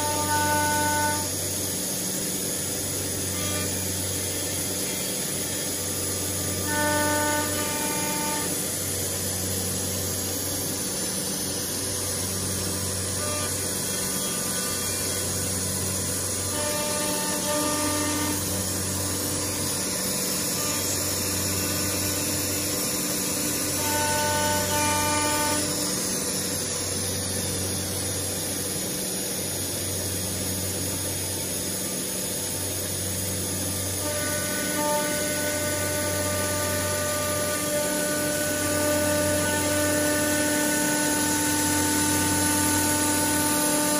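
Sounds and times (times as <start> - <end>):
router spindle cutting panel: 32.4 - 43.9.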